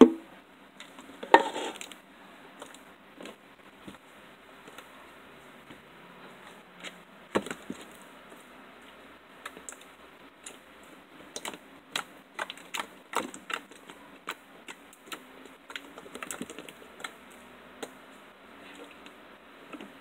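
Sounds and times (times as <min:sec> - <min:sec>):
slime crust crackling and popping: 0:08.9 - 0:18.0.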